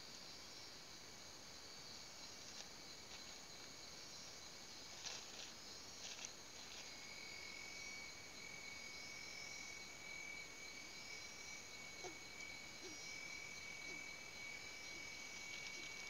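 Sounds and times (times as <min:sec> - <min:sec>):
low insect tone: 0:00.0 - 0:16.0
high-pitched insect trilling: 0:10.8 - 0:16.0.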